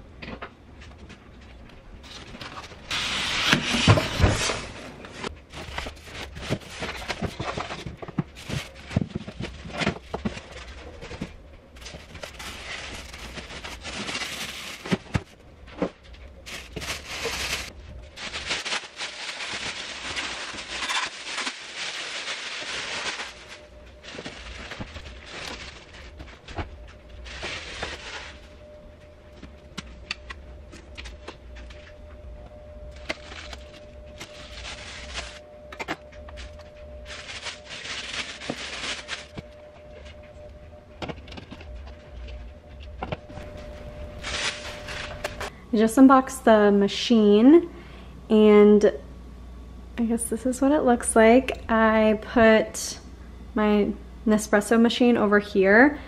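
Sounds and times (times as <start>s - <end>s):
plastic bag rustling: 2.0s - 29.4s, 32.9s - 35.4s, 36.0s - 40.2s, 43.4s - 45.5s
styrofoam and cardboard scraping: 2.8s - 4.9s.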